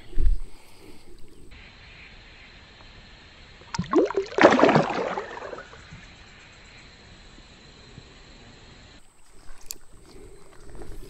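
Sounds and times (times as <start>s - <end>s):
water splash: 3.7s - 5.9s
fish swishing in water: 3.8s - 6.0s.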